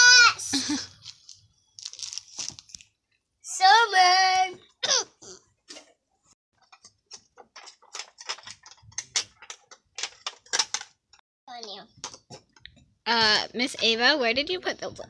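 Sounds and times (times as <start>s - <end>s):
child's voice: 0.0s - 0.6s, 3.5s - 4.6s.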